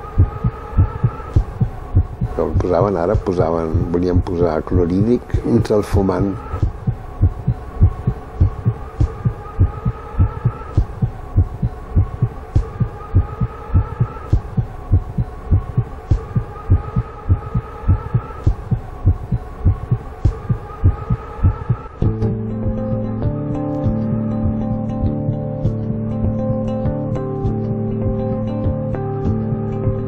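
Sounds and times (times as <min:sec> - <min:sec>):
wavering tone: 0:00.0 - 0:02.7, 0:06.0 - 0:24.5
deep regular thumping: 0:00.2 - 0:04.9, 0:06.6 - 0:22.2
guitar music: 0:22.0 - 0:30.0.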